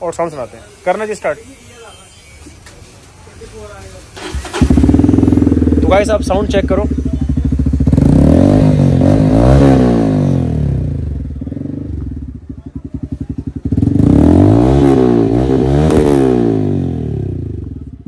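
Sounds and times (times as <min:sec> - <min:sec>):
motorcycle engine revving: 0:04.2 - 0:18.0.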